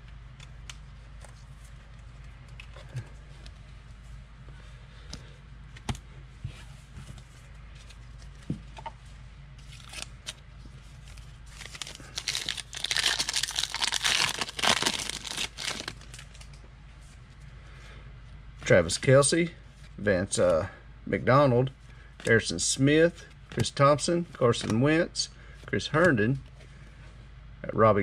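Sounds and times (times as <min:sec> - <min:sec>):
foil wrapper crinkling and tearing: 0:09.6 - 0:10.4, 0:11.1 - 0:16.6.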